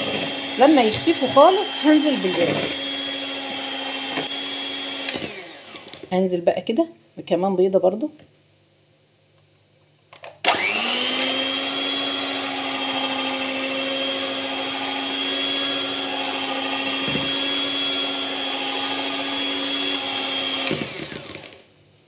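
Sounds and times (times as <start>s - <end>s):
electric hand mixer whirring: 0.0s - 6.1s, 10.4s - 21.7s.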